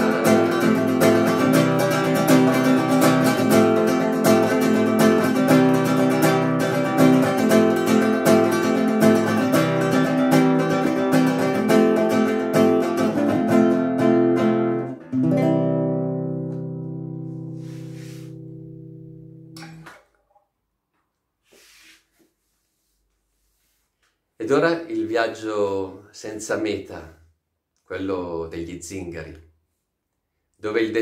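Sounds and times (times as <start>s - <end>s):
acoustic guitar strumming: 0.0s - 20.0s.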